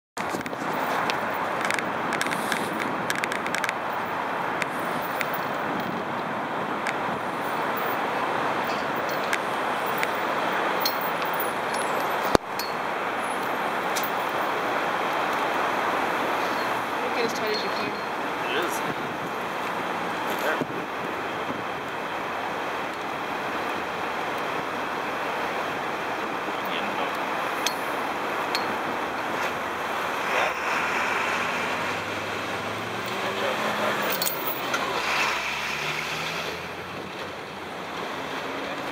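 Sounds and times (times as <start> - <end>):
city traffic noise: 0.2 - 38.9
steel chain clinking: 8.6 - 14.5, 34.0 - 35.4
vehicle engine passing: 13.0 - 38.9.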